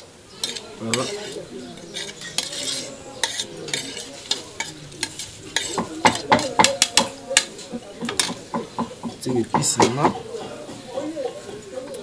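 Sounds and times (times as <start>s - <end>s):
spoon scraping a bowl: 0.4s - 8.5s.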